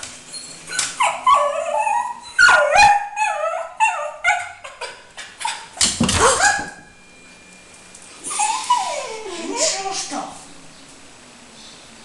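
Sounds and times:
dog yipping and barking: 0.7 - 6.9.

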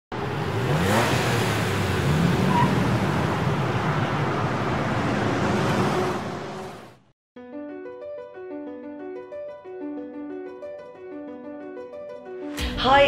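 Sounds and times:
vehicles accelerating past: 0.1 - 7.0
road traffic noise: 0.1 - 7.1.

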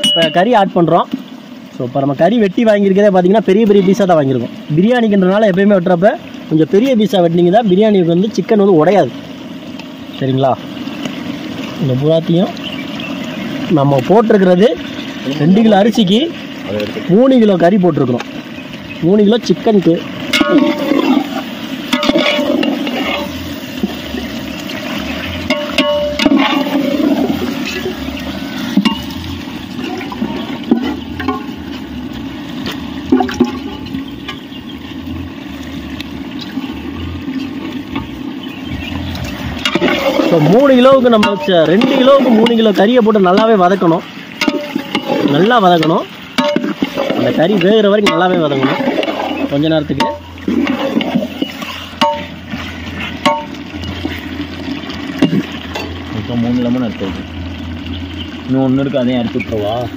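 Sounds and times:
ladle stirring wet sauce: 2.4 - 59.9
liquid pouring into a pot: 10.6 - 34.7
metal pot rims knocking: 20.2 - 24.1, 24.7 - 28.0, 28.7 - 31.6, 33.0 - 34.4, 39.3 - 56.1.

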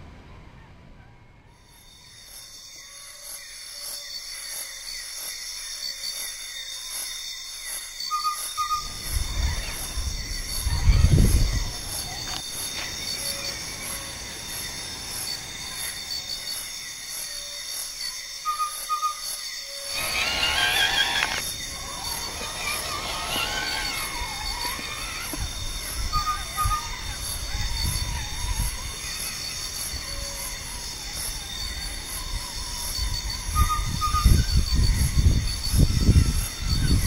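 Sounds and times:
insects chirping: 1.0 - 37.0
rc truck motor and gearbox: 19.9 - 25.6.

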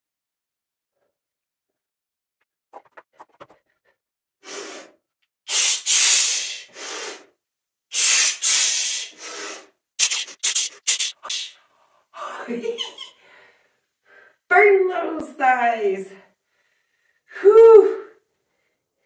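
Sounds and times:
woman breathing heavily: 13.2 - 14.5, 16.3 - 17.4.

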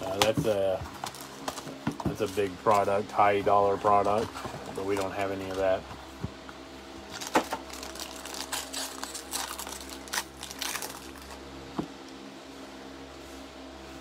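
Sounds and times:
steady low hum: 0.0 - 14.0
wrapping rustling: 7.1 - 11.5.

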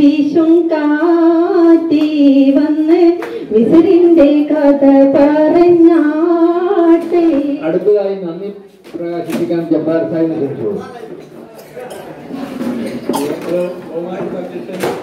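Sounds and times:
woman singing into a microphone: 0.0 - 7.6.

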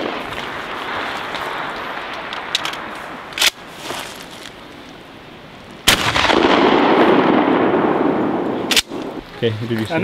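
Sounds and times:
shotgun firing: 5.9 - 9.2
loud lingering noise: 5.9 - 9.3.

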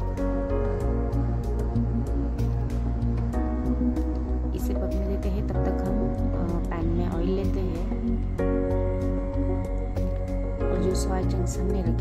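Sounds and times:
music with sustained chords: 0.0 - 12.0.

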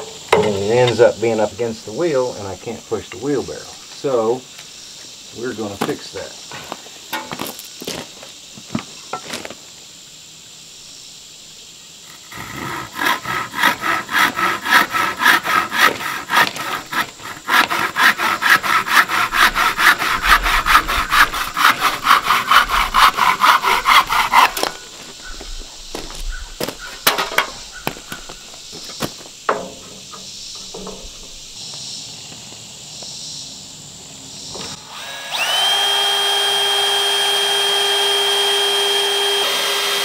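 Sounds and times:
hand saw cutting wood: 12.1 - 24.8, 34.7 - 40.0.

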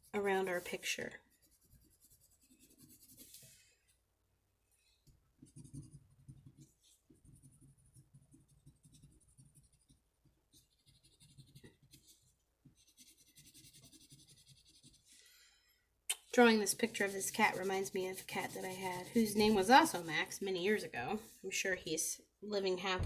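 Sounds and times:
crayon scratching on paper: 0.0 - 3.5, 5.4 - 15.1, 16.3 - 20.9.

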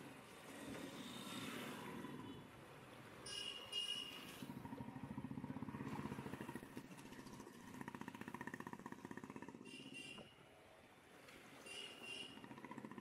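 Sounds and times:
motorcycle engine running: 4.5 - 9.7.

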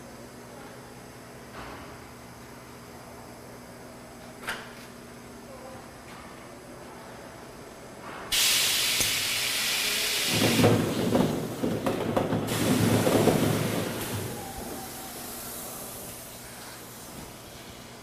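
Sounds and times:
compressed air hiss: 8.3 - 11.6, 12.5 - 17.8.

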